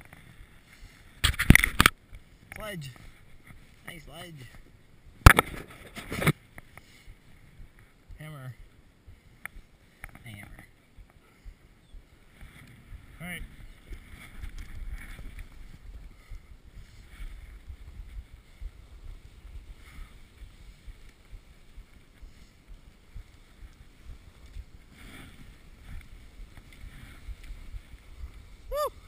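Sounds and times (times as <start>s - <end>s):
skis sliding over snow: 0.0s - 1.5s, 12.1s - 29.0s
wind rumble on microphone: 4.5s - 29.0s.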